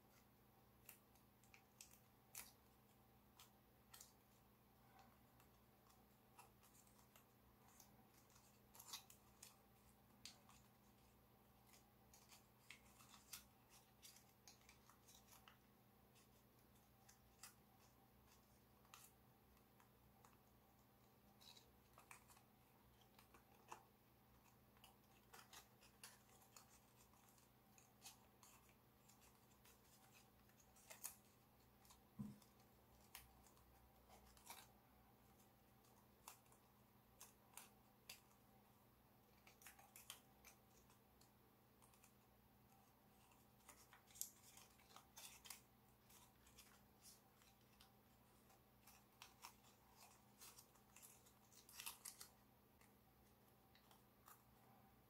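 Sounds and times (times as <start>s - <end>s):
foil paper crinkling and clicking: 21.4s - 38.4s, 43.1s - 52.4s.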